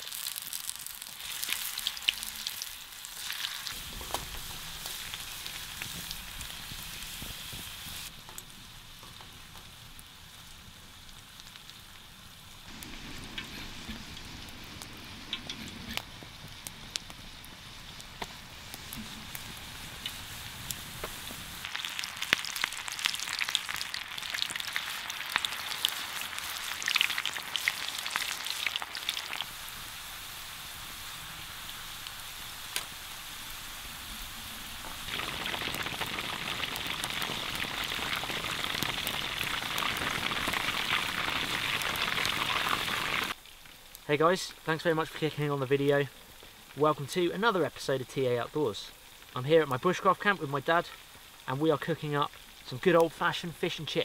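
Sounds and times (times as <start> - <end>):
hot oil sizzling and spitting: 0.0 - 54.0
sharp crackling: 11.1 - 30.0, 34.7 - 54.0.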